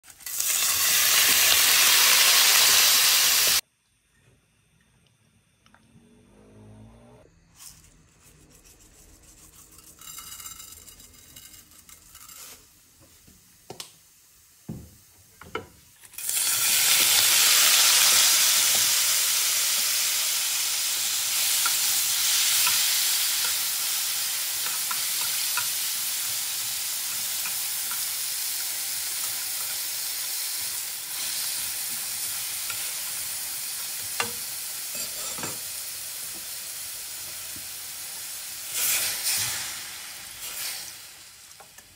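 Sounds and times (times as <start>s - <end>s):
shrimp sizzling in hot oil: 0.0s - 3.6s, 15.9s - 41.9s.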